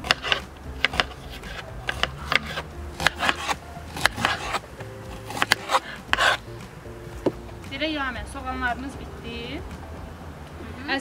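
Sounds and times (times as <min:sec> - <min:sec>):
knives tapping cutting board: 0:00.0 - 0:06.4.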